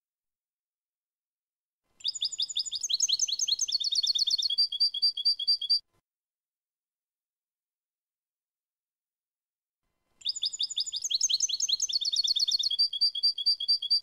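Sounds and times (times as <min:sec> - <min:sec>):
goldfinch singing: 0:02.0 - 0:05.8, 0:10.2 - 0:14.0.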